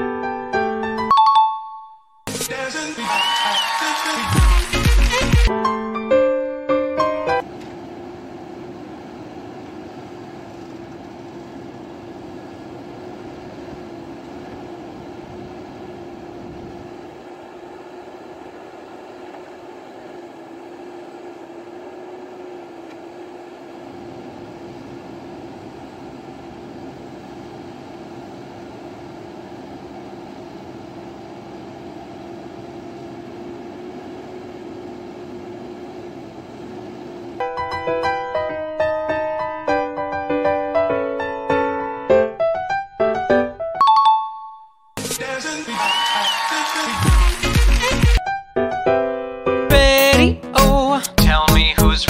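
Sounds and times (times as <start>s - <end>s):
diesel engine running: 7.4s - 37.4s, 49.7s - 52.0s.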